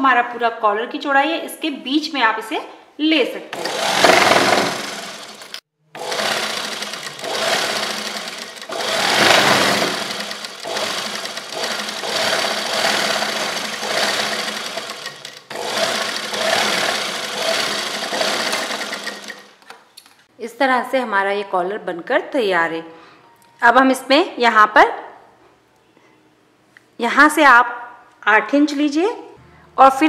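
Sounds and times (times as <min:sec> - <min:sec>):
sewing machine running: 0:03.6 - 0:19.7.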